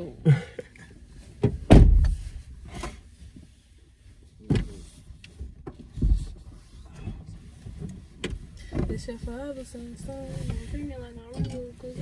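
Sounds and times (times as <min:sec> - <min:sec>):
car doors thumping shut: 0:01.4 - 0:02.3
light clicks and clunks: 0:04.4 - 0:12.0.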